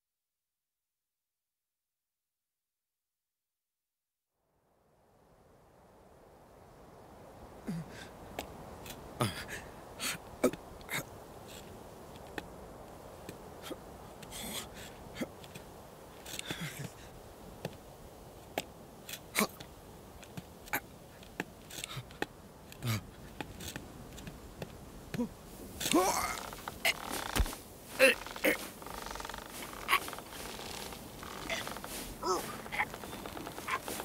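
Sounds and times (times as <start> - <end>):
hooves clicking on rock: 14.2 - 34.0.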